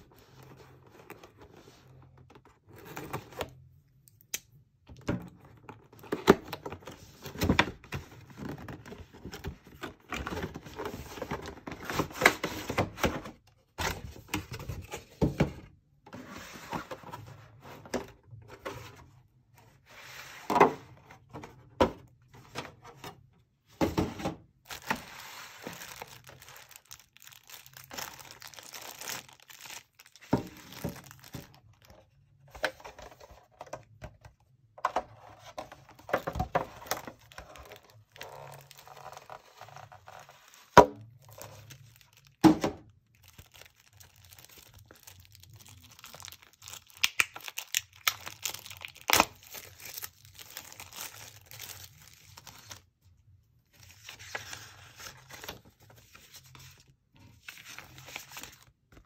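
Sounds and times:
plastic bag crinkling: 25.7s - 31.7s, 43.1s - 52.7s.

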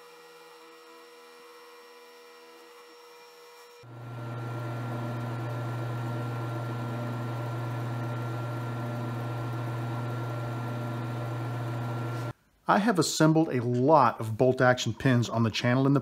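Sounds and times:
lathe motor hum: 3.8s - 12.3s.

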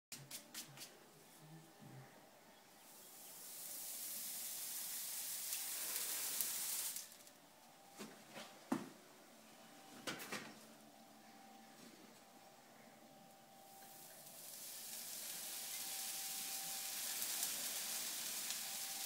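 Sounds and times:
hot horseshoe sizzling on hoof: 2.9s - 7.4s, 13.7s - 19.0s.

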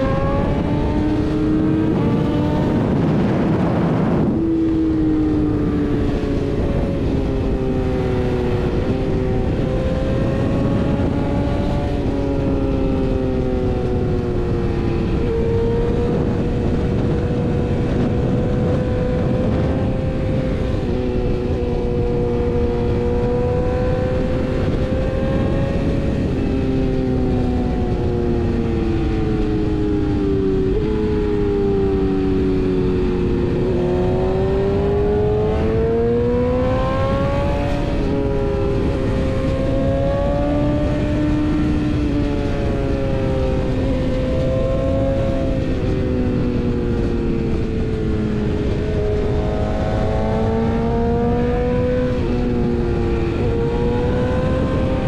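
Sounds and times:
motorcycle engine running: 0.0s - 55.0s
wind and road noise: 0.0s - 55.0s.

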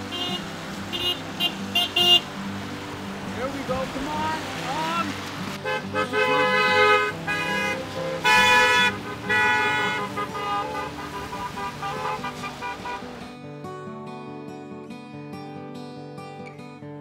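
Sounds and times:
car horns honking: 0.0s - 2.3s, 5.6s - 13.2s.

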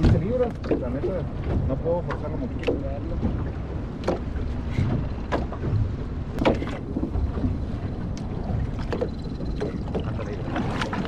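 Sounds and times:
water lapping against boat hull: 0.0s - 11.0s
wind buffeting microphone: 0.0s - 11.0s.

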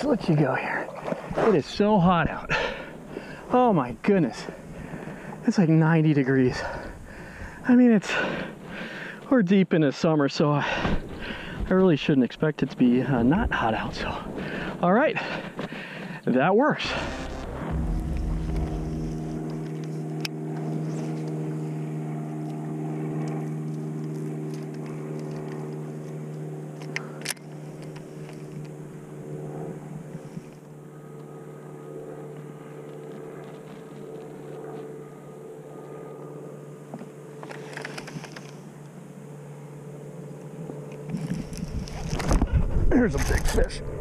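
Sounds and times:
trolling motor humming: 16.8s - 42.6s.

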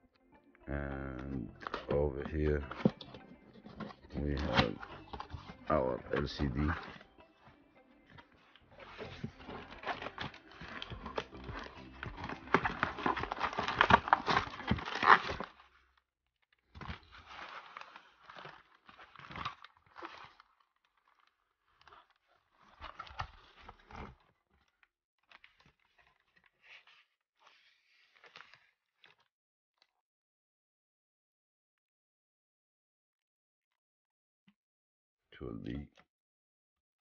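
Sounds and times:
plastic packaging crinkling: 8.3s - 15.8s, 16.7s - 29.3s.

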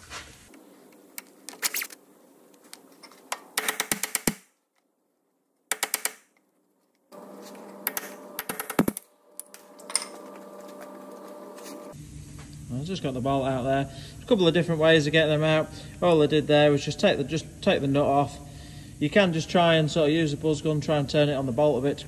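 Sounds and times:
impact wrench hammering: 3.4s - 4.5s, 5.7s - 6.3s, 7.8s - 10.3s
steady hum: 7.1s - 22.0s.

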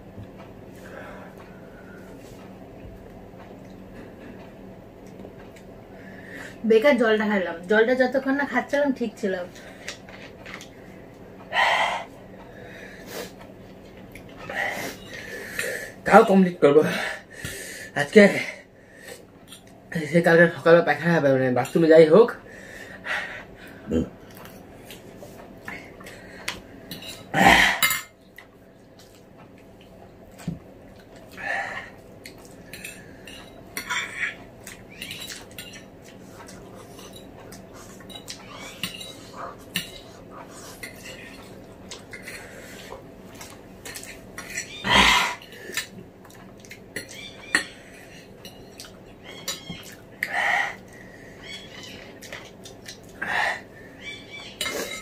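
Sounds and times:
forks clinking on glass plates: 26.9s - 28.2s, 35.0s - 35.9s, 38.0s - 40.1s, 54.6s - 55.0s.

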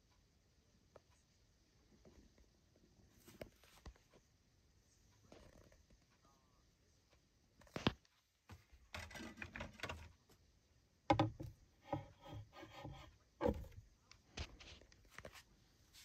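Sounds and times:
soft knocks: 11.1s - 13.8s.

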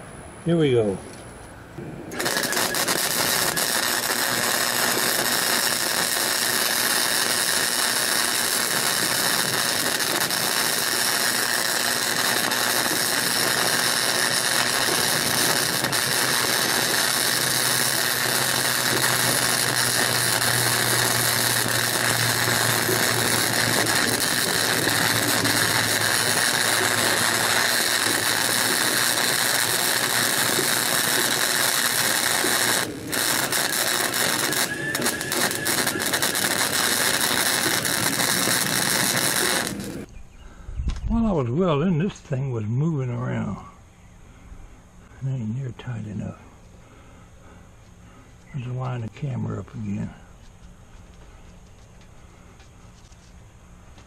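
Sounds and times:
welder arc crackling: 1.8s - 40.1s.

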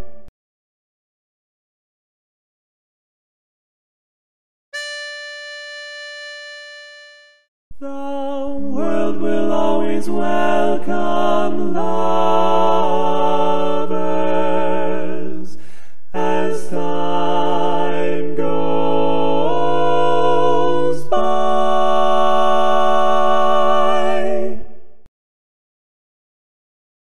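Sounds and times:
men singing a cappella harmony: 7.8s - 24.8s.

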